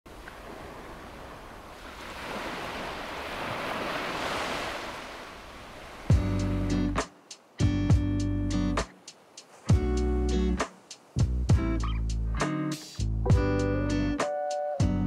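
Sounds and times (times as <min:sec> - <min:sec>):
waves washing against rocks: 0:00.1 - 0:06.3
acoustic guitar music: 0:06.1 - 0:15.0.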